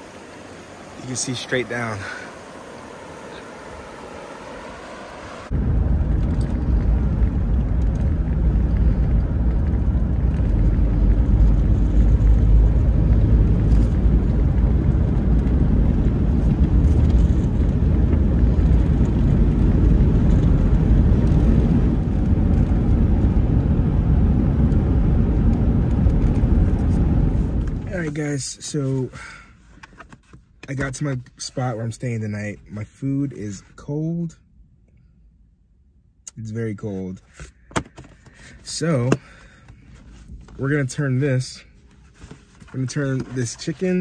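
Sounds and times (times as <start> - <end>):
river water running over rocks: 0.0 - 5.5
van driving on paved road: 0.0 - 34.0.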